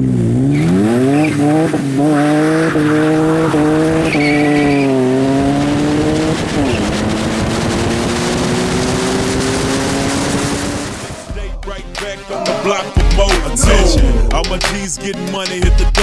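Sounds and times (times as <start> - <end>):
wind and road noise: 0.0 - 11.3
car engine accelerating: 0.0 - 14.9
music: 10.8 - 16.0.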